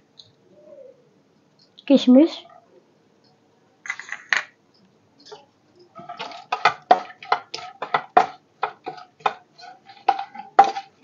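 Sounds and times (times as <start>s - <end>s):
spatula knocking and scraping pan: 5.3s - 11.0s.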